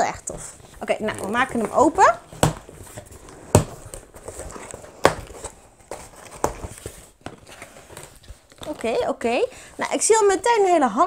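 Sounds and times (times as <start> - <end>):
cardboard box rustling: 0.0 - 10.8
sharp cardboard knocks: 1.2 - 7.4.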